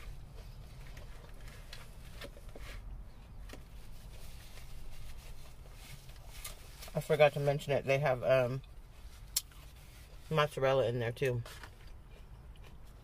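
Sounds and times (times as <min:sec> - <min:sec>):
chewing and mouth noises: 0:11.7 - 0:13.0.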